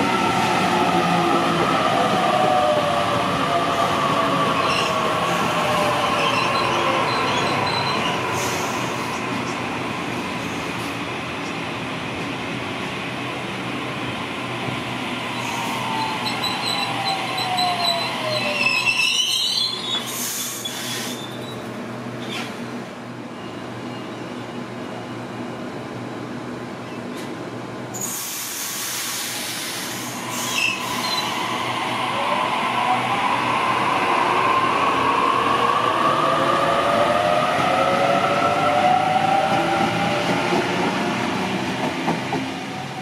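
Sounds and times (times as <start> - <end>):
train low hum: 0.0 - 19.1, 19.8 - 43.0.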